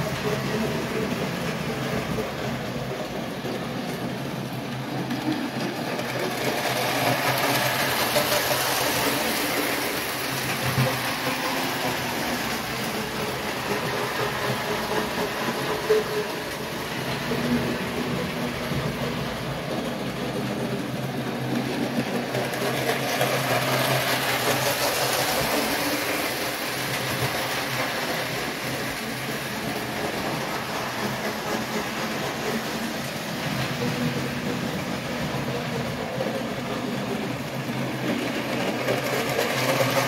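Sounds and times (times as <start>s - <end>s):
wheels rumbling on rails: 0.0s - 40.0s.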